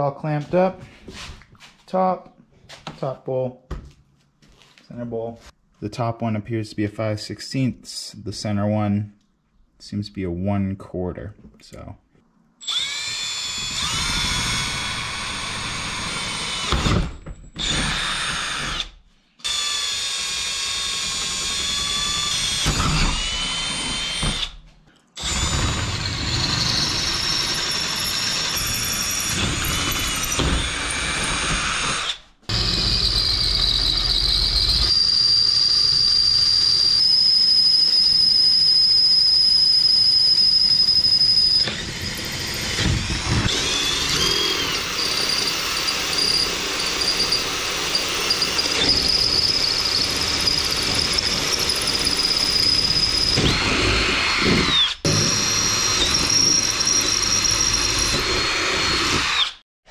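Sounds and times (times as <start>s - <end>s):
cordless drill boring metal: 12.6s - 24.6s, 25.2s - 59.6s.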